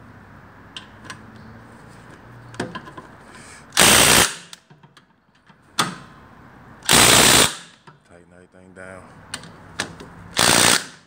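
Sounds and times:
impact wrench hammering: 9.8s - 11.0s.

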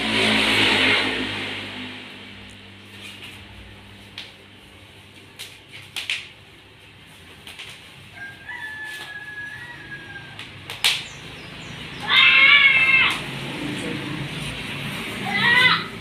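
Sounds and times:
distant rooster crowing: 8.0s - 10.7s.

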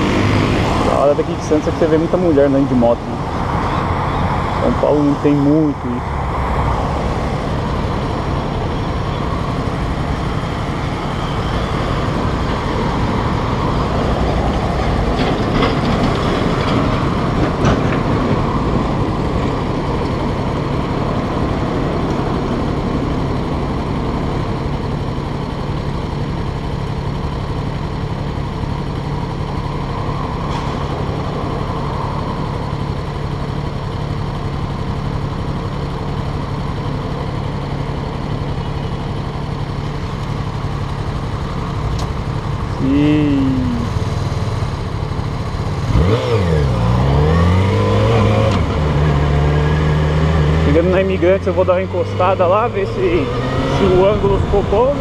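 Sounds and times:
street traffic passing: 0.0s - 55.0s
motorcycle engine idling: 21.8s - 30.4s, 31.8s - 45.9s.

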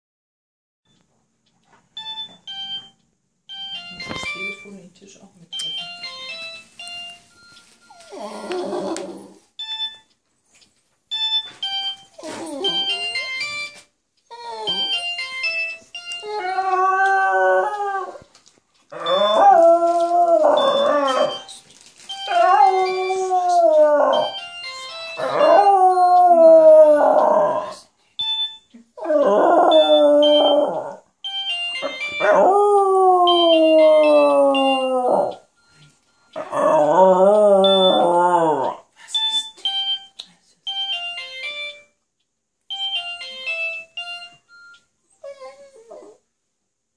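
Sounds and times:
beeping phone ringtone melody: 2.0s - 4.8s, 5.5s - 8.3s, 9.6s - 10.1s, 11.1s - 13.8s, 14.5s - 17.4s, 19.0s - 25.9s, 28.2s - 28.7s, 29.6s - 32.6s, 33.2s - 38.2s, 39.2s - 42.0s, 42.7s - 44.9s
dog howling: 8.0s - 9.4s, 16.2s - 18.2s, 18.9s - 21.4s, 22.3s - 24.4s, 25.2s - 27.8s, 29.0s - 31.0s, 32.2s - 35.4s, 36.4s - 38.9s.

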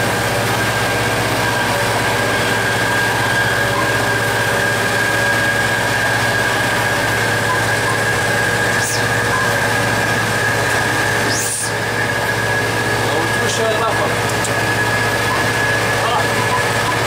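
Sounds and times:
high whine: 0.0s - 17.0s
locomotive diesel engine drone: 0.0s - 17.0s
high-pitched sweeping sounds: 1.4s - 14.0s.

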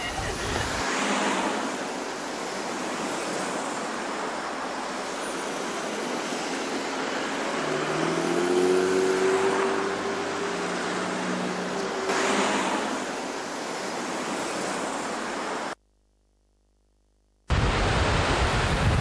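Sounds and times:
truck passing on highway: 6.4s - 15.7s
car engine passing: 7.2s - 14.8s.

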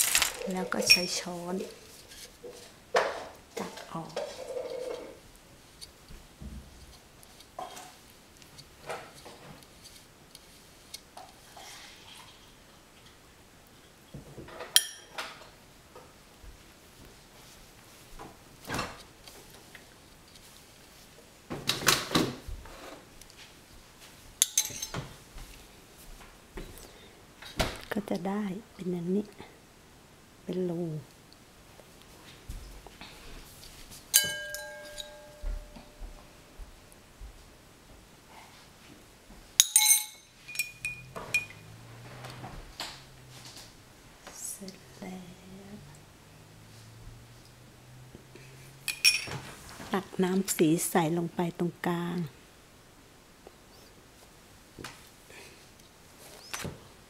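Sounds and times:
spoon scraping glass bowl: 0.0s - 2.3s, 34.2s - 35.8s
spoon clinking in ceramic cup: 0.1s - 1.2s, 24.4s - 25.0s, 34.2s - 36.0s, 39.6s - 41.7s.

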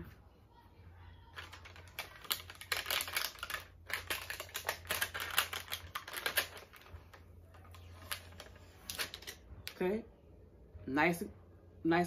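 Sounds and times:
plastic film crinkling: 1.3s - 9.4s.

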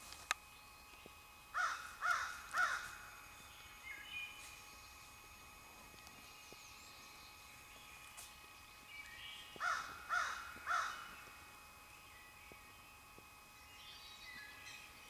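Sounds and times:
crow cawing: 1.5s - 3.0s, 9.6s - 11.1s.

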